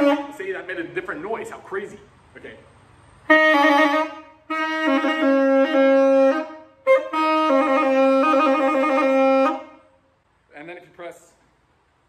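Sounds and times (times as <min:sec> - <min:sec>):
saxophone long notes: 0:00.0 - 0:00.4, 0:03.2 - 0:10.0.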